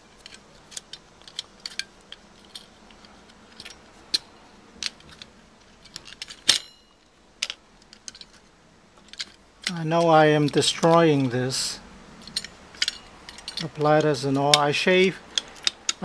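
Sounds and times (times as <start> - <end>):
small metal clicks and clinks: 0.1 - 11.4, 12.2 - 16.0
sharp metallic clink ringing: 6.5 - 7.1.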